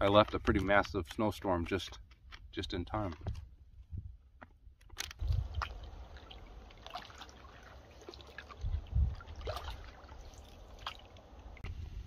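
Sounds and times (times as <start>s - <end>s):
small splashes: 5.0s - 11.6s
water dripping off paddle: 5.2s - 11.6s.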